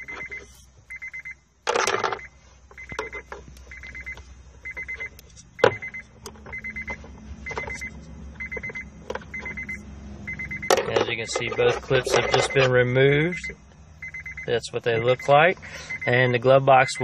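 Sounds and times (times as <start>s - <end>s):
high electronic beeps: 0.0s - 17.0s
plastic handling noises: 1.7s - 9.7s, 10.6s - 12.8s.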